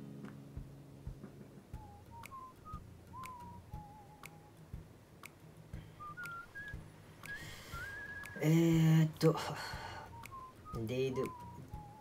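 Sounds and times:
faint high whistled notes: 1.8 - 4.6, 5.8 - 8.5, 9.8 - 12.0
sharp tick: 1.8 - 9.4, 10.1 - 11.9.

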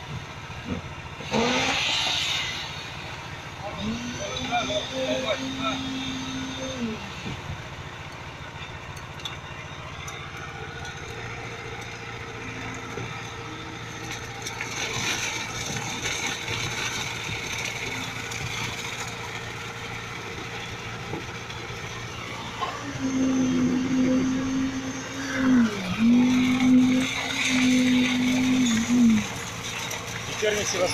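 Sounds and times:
pump truck engine running: 0.0 - 30.9
steady hum: 2.4 - 30.9.

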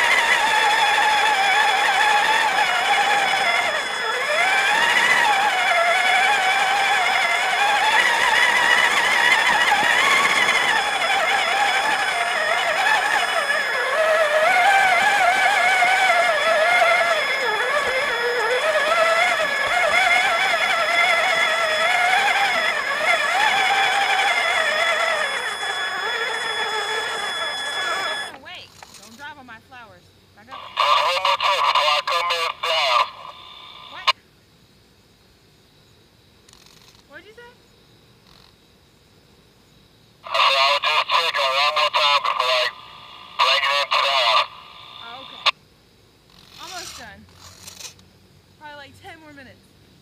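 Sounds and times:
high electronic tones: 0.0 - 28.4, 40.3 - 45.5
toy truck motor whining: 0.0 - 29.3, 40.3 - 45.5, 46.3 - 48.0.

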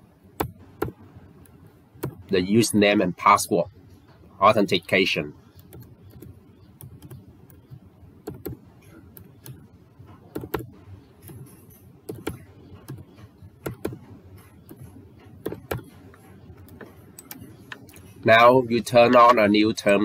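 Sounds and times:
keyboard keystrokes: 5.6 - 8.6, 10.3 - 11.5, 12.1 - 15.9.

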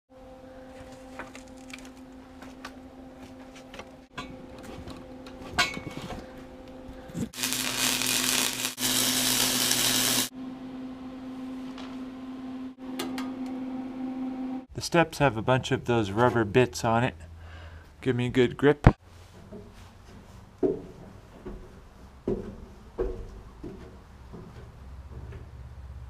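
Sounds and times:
steady low hum: 0.1 - 18.0
power tool cutting steel: 7.3 - 10.3.

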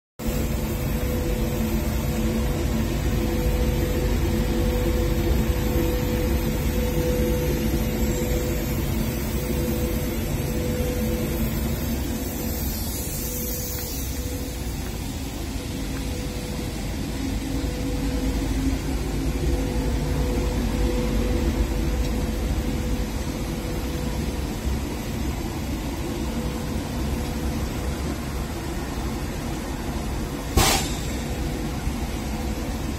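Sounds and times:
machine hum of extraction fan: 0.2 - 32.9.

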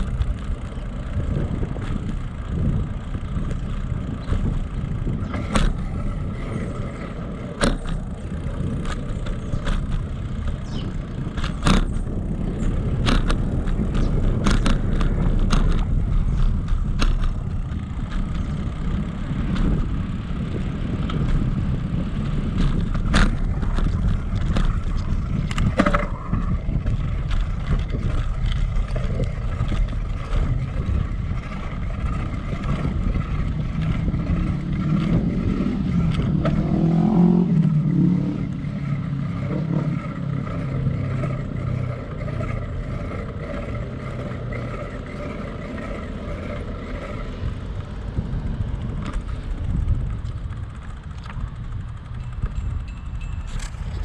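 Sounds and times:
bicycle clicks and rattles: 0.0 - 54.0
bicycle tyre noise: 0.0 - 54.0
wind rumble on microphone: 0.0 - 54.0
wavering engine-like drone: 22.7 - 54.0.

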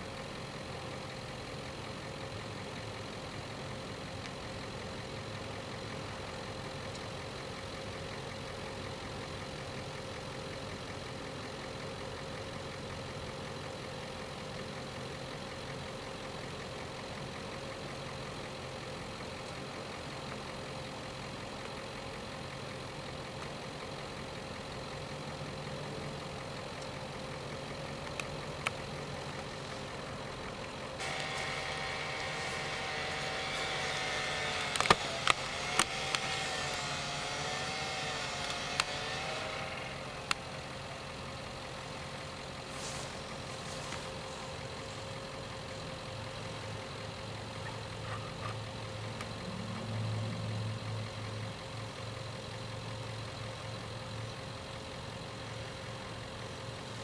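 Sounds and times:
engine idling: 0.0 - 57.0
high steady whine: 28.1 - 45.2
small clicks: 33.6 - 36.9.

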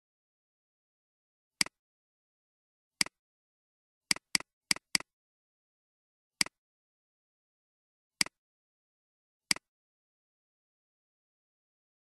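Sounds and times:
computer mouse clicks: 4.1 - 5.1, 8.2 - 8.4.

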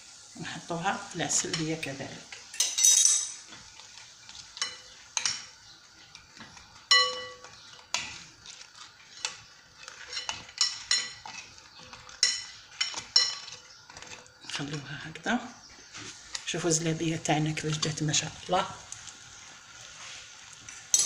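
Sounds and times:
cutlery clinking on glass plate: 1.6 - 3.5, 6.5 - 8.2, 9.9 - 14.1.

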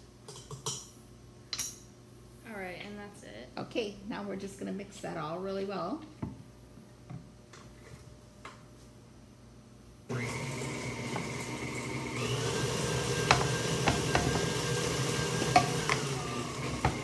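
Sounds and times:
stand mixer running: 10.1 - 17.0.

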